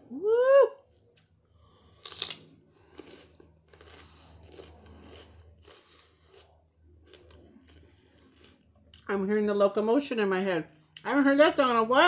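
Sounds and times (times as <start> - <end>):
crunchy chewing: 1.1 - 9.0
biting into celery crunch: 2.0 - 8.6.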